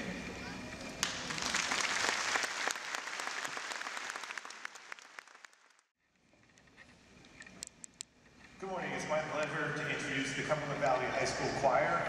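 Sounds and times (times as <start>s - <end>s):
audience applauding: 1.0s - 5.9s.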